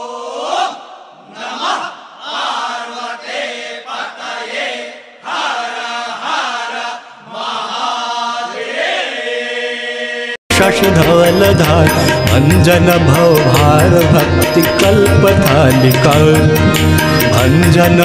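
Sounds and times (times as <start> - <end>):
voices chanting: 0.0 - 10.4.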